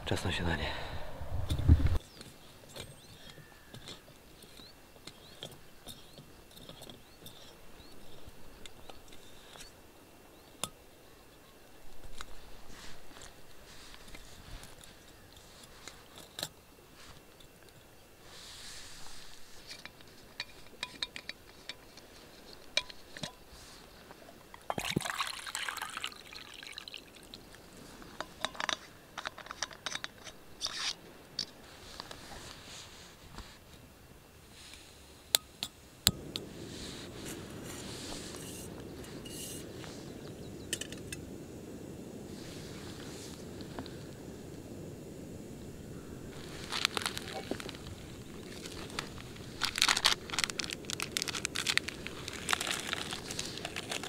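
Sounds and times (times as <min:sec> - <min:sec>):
small metal clicks and knocks: 0:02.2 - 0:07.5, 0:19.6 - 0:23.4, 0:28.2 - 0:31.6
water pouring into pot: 0:24.7 - 0:27.4.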